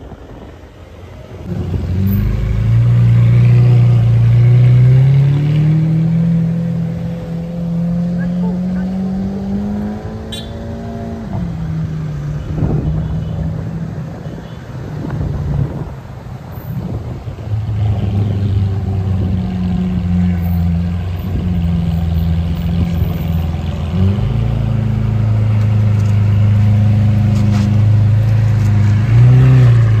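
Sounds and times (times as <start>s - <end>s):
car engine deep drone: 0.0s - 16.0s.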